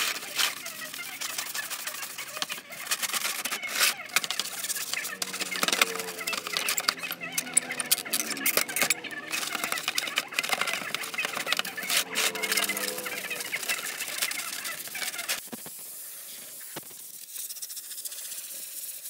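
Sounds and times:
sponge scrubbing plastic: 0.0 - 19.0
distant poultry calling: 0.6 - 15.4.

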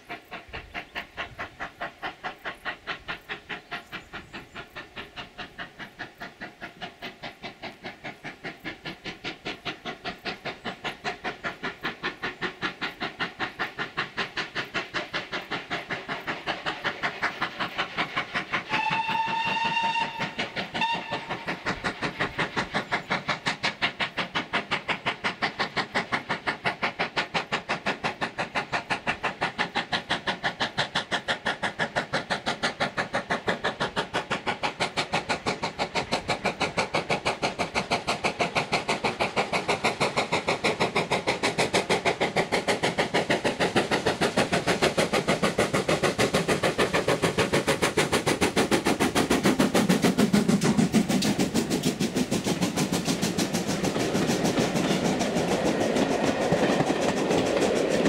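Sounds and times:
steam locomotive chuffing: 0.0 - 58.0
steam locomotive whistle: 18.6 - 21.7.

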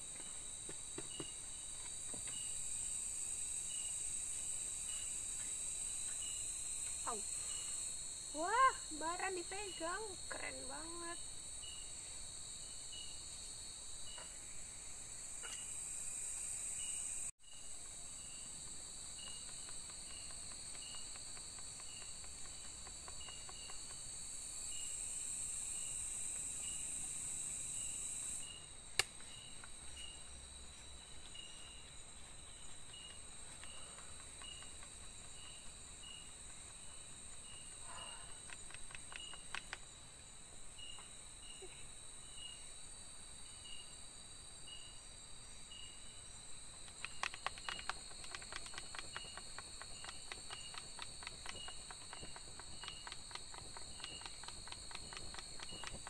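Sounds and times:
cricket chirping: 0.0 - 56.0
insects droning: 0.0 - 56.0
sharp snap: 29.0 - 29.2.

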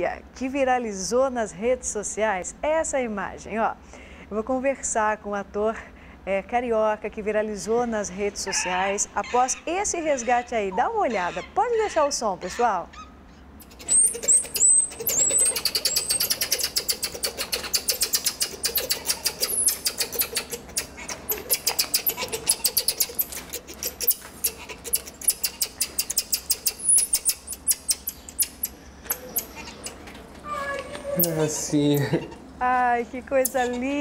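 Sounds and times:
marmosets chirping: 8.5 - 32.5, 33.3 - 34.0
marmoset rising whistles: 13.6 - 31.4.

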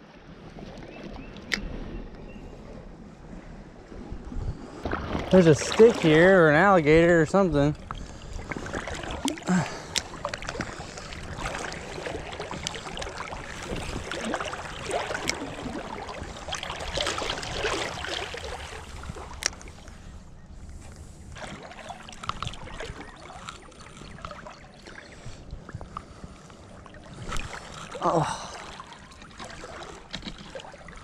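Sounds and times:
creek water rushing: 5.2 - 7.7, 8.6 - 19.1, 27.2 - 30.0.

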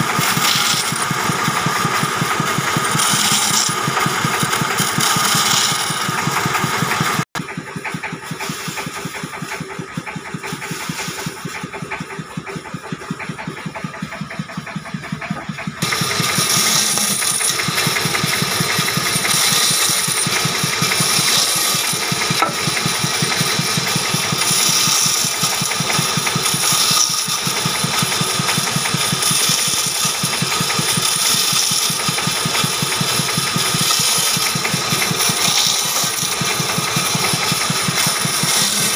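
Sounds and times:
band saw cutting wood: 0.0 - 38.9.

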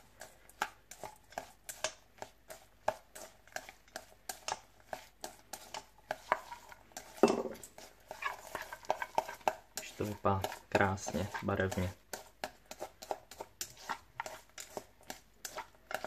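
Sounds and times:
chopsticks tapping metal bowl: 7.0 - 7.9.

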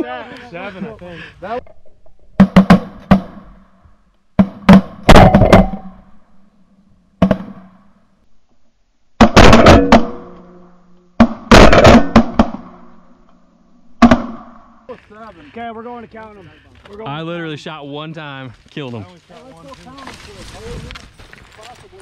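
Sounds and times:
shotgun blasts: 11.2 - 12.9.

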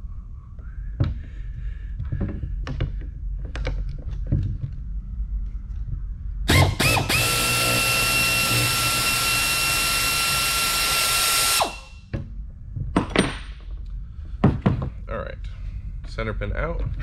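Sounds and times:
power tool spinning nut: 6.5 - 12.0.

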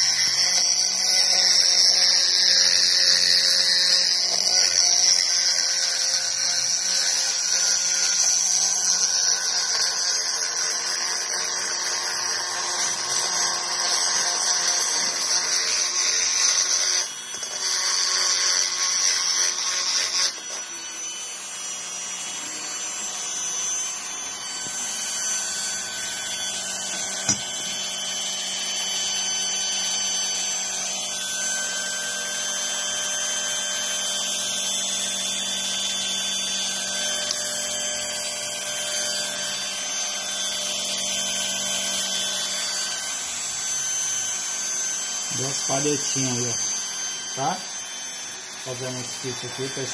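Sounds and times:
rotary tool grinding metal: 0.0 - 49.9
rotary tool whining: 0.0 - 49.9.

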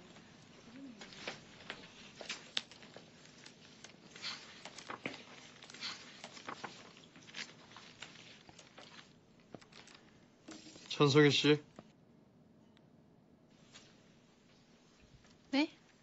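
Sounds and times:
paper pages rustling: 0.0 - 11.9.

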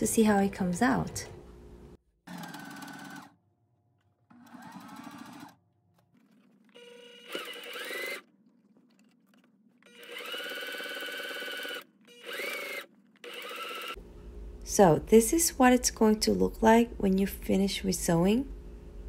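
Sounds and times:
electric sewing machine stitching: 2.2 - 3.4, 4.3 - 8.4, 9.0 - 14.0.

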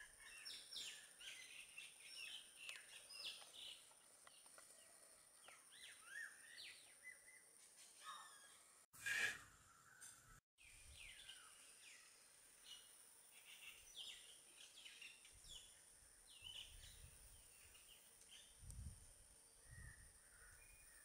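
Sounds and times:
birds chirping and whistling: 5.5 - 7.4.

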